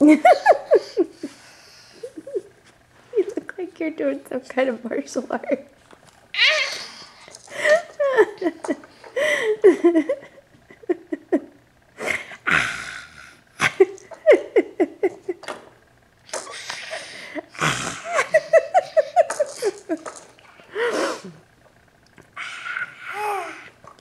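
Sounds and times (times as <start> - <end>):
baby laughing squeals: 6.4 - 7.0.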